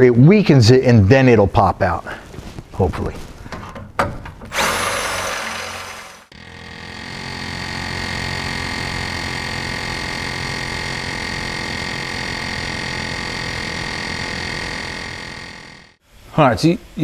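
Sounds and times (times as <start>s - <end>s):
cordless drill boring into steel: 4.5s - 15.7s
mechanical hum with high whine: 6.4s - 17.0s.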